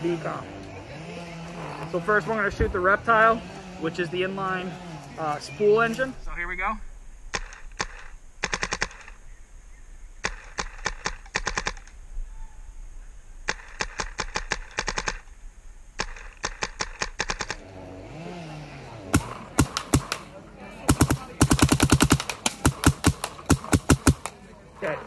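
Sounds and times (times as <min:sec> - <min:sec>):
paintball marker firing: 0:07.3 - 0:09.2, 0:10.2 - 0:12.0, 0:13.5 - 0:15.2, 0:16.0 - 0:17.6, 0:19.1 - 0:24.4.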